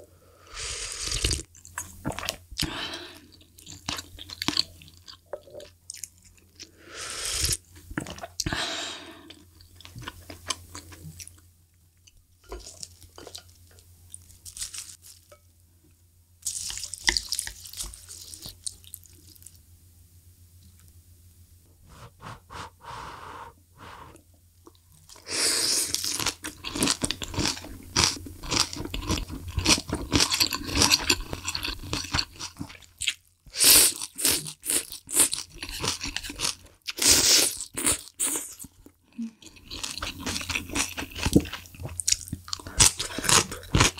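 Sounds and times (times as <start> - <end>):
chewing: 37.5 - 43.9.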